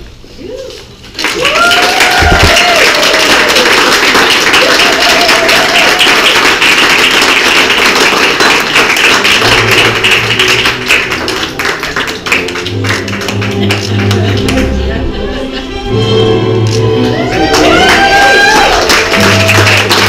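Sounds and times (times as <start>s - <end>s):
person whooping: 0.4s - 6.2s, 17.1s - 19.9s
guests applauding and cheering: 1.0s - 15.0s, 16.6s - 20.0s.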